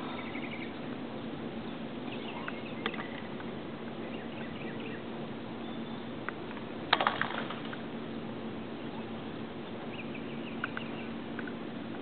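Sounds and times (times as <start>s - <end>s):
bird chirping: 0.0s - 3.2s, 4.0s - 6.2s, 8.8s - 11.2s.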